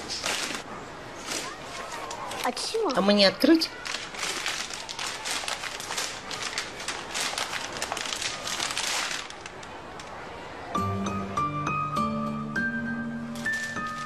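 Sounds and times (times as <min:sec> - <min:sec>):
gift wrapping crinkling: 0:00.0 - 0:00.6, 0:01.2 - 0:09.8, 0:13.4 - 0:14.0.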